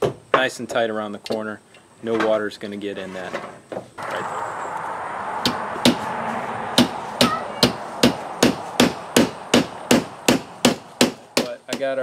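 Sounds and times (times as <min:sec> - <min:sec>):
hammer nailing metal: 0:07.6 - 0:12.0.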